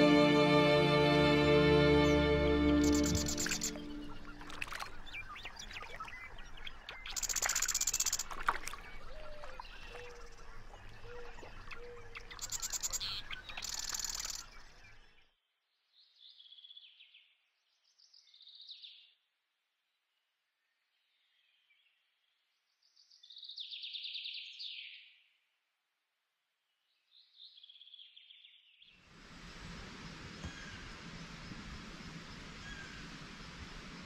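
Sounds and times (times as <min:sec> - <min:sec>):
light outdoor hiss: 0:00.0 - 0:08.4, 0:29.0 - 0:34.0
birds chirping and calling: 0:01.9 - 0:15.0.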